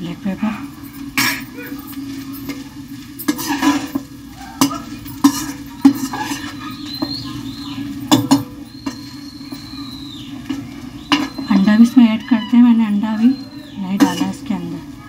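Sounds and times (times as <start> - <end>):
metal spatula scraping a wok: 3.2 - 7.5, 8.1 - 11.6, 13.3 - 14.5.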